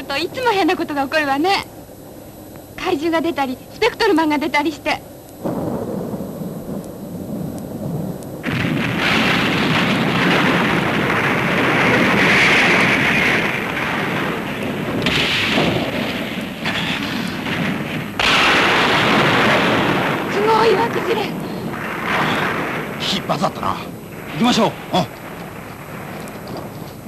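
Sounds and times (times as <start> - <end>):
rocks falling in rumbling crash: 8.4 - 27.0.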